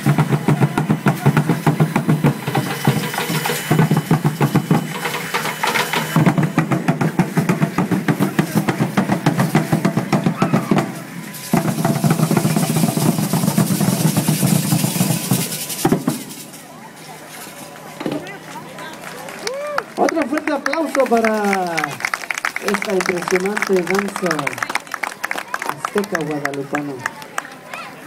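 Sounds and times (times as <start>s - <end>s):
fast steady drumming: 0.0s - 16.6s, 20.2s - 24.8s.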